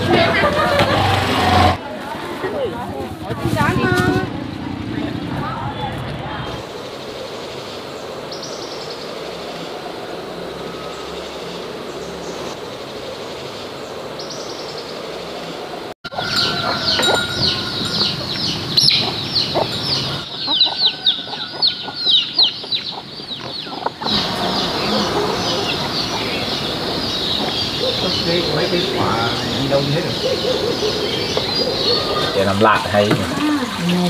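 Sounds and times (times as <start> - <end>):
chicks peeping: 16.1 - 32.6.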